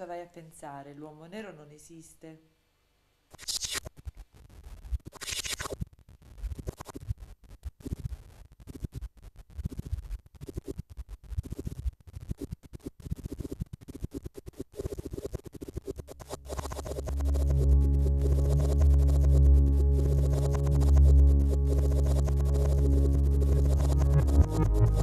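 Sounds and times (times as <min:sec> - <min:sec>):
electronic scratching bursts: 0:13.0 - 0:25.0.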